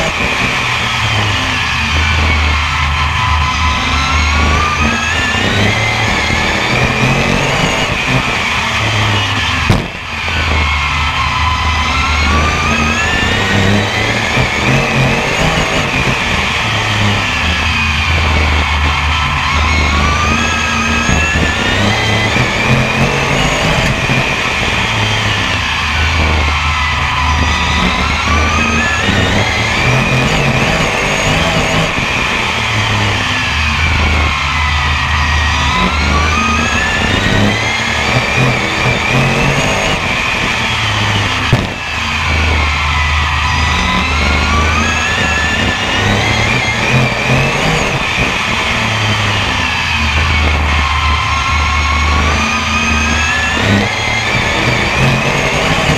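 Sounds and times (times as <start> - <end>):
racing engine revving: 0.0 - 55.9
sharp knock: 9.7 - 10.0.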